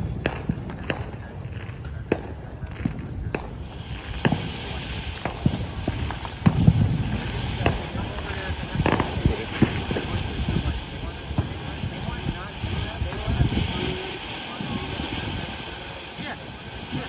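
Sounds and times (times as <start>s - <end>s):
firework fountain hissing: 0.0s - 17.0s
sharp pops and cracks: 0.2s - 10.7s.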